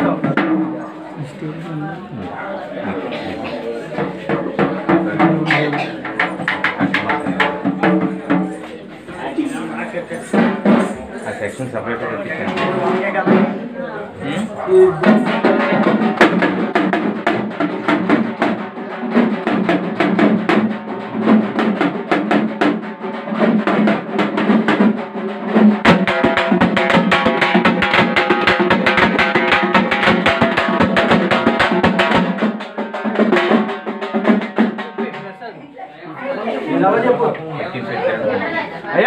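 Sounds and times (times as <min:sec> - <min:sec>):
deep drum beating steadily: 0:00.0 - 0:01.4, 0:03.9 - 0:08.7, 0:12.2 - 0:35.4
fast dense drumming: 0:04.0 - 0:08.6, 0:12.2 - 0:13.7, 0:14.5 - 0:35.3.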